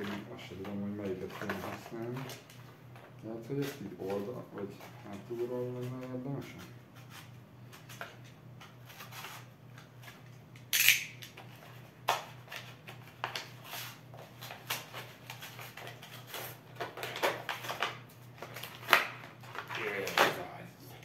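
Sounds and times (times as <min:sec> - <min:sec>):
packaging rustling: 0:00.0 - 0:05.9, 0:11.4 - 0:20.5.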